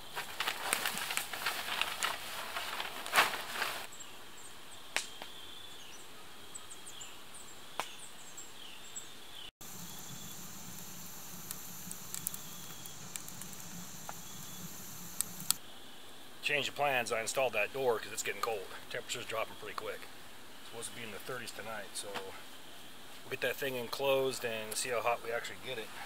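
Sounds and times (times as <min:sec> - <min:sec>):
noisy rustle: 0:00.0 - 0:04.0, 0:09.6 - 0:26.0
cricket trill: 0:09.6 - 0:15.6
insects chirping: 0:09.6 - 0:16.1
sharp pops: 0:09.8 - 0:15.6.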